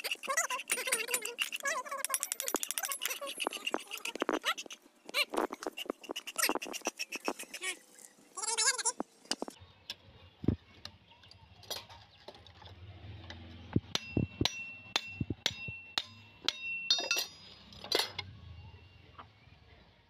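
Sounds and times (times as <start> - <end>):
hammer tapping metal: 13.9 - 17.5.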